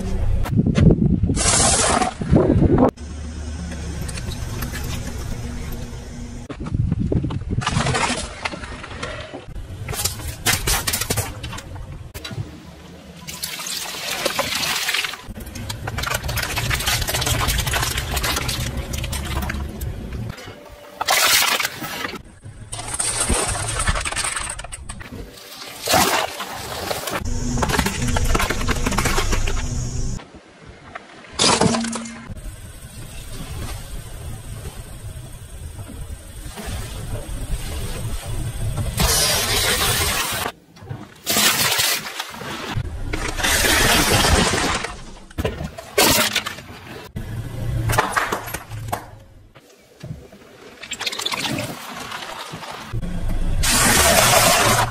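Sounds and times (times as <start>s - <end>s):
plastic bottles bursting and splashing: 13.3s - 19.7s, 53.6s - 54.9s.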